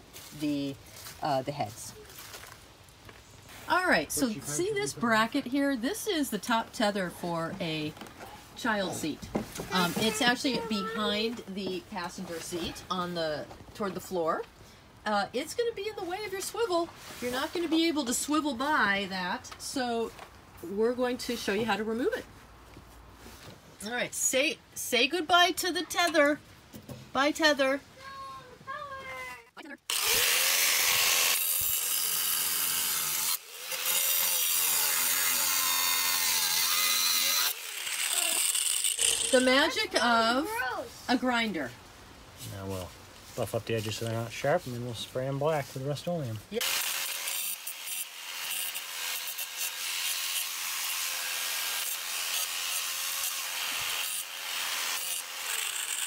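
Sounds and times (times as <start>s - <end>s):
angle grinder cutting steel: 29.9s - 39.9s, 46.6s - 56.0s.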